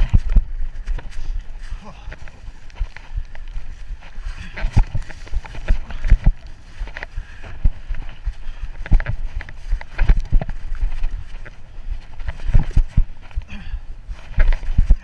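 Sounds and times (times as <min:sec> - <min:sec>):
tyre and wind rush: 0:00.0 - 0:15.0
bike knocks and rattles: 0:04.0 - 0:15.0.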